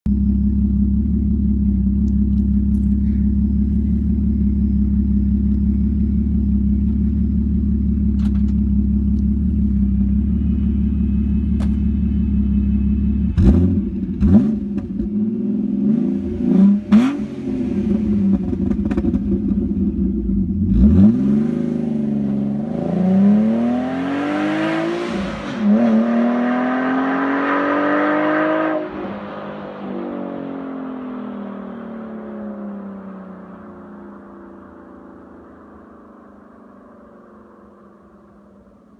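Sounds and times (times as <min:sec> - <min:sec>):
car engine idling and revving: 0:00.1 - 0:38.9
car accelerating through gears: 0:20.7 - 0:32.3.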